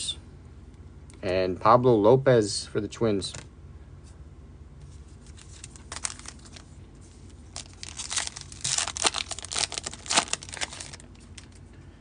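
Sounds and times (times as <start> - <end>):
foil pack tearing and crinkling: 5.3 - 6.7, 7.5 - 11.6.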